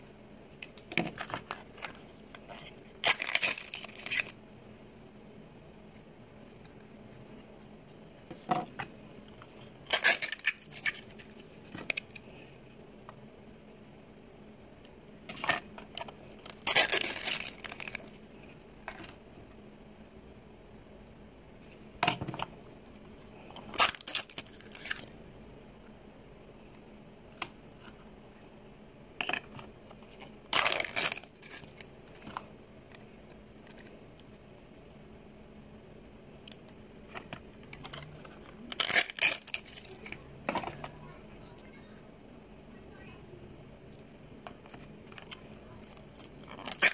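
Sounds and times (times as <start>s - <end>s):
paper wrapper tearing and crinkling: 0.7s - 4.4s, 9.8s - 12.2s, 16.0s - 18.2s, 23.6s - 25.2s, 30.4s - 32.2s, 37.7s - 40.1s, 45.0s - 46.9s
plastic pieces rattling: 16.0s - 18.1s.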